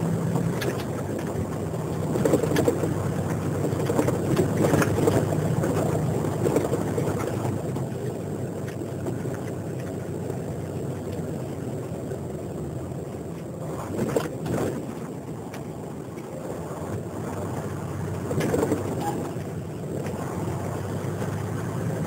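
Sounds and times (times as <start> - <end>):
vehicle engine and road rumble: 0.0 - 22.0
knocks and rattles: 0.2 - 10.0, 18.2 - 20.2.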